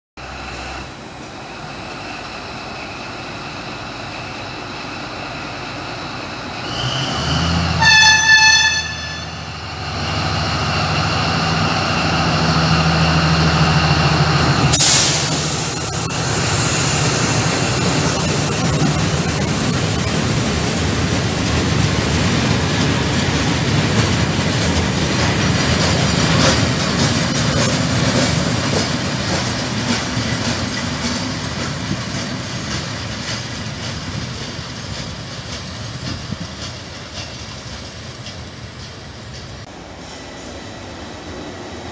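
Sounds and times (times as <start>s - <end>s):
locomotive horn blast: 7.6s - 9.6s
wheels clattering over rails: 17.0s - 39.7s.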